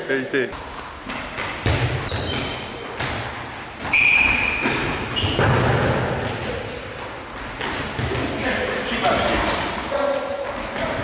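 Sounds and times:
shoes squeaking on floor: 0.6s - 3.1s, 3.7s - 11.0s
ball kicks: 1.6s - 3.2s
high squeal: 3.9s - 5.4s.

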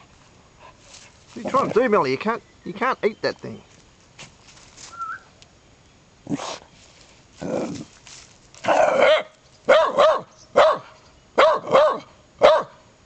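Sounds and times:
small dog barking: 8.6s - 12.8s.

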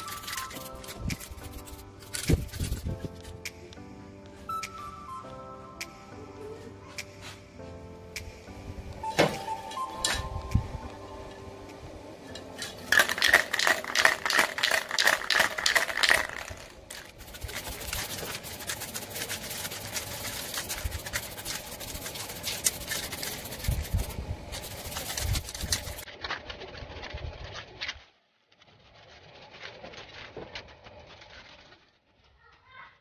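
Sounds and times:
spray can ball rattling: 0.0s - 3.7s, 9.0s - 10.8s, 12.3s - 26.1s
spray paint hissing: 0.0s - 3.7s, 9.0s - 10.9s, 12.3s - 26.1s.

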